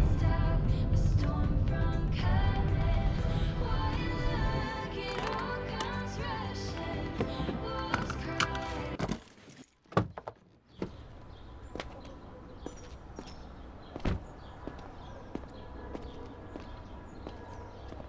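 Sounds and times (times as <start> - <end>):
background music: 0.0 - 9.1
steady outdoor hum: 0.0 - 9.2, 10.2 - 18.0
footsteps on pavement: 11.7 - 18.0.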